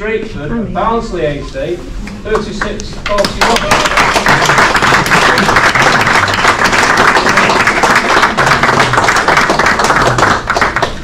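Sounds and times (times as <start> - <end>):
crowd applauding: 2.4 - 11.0.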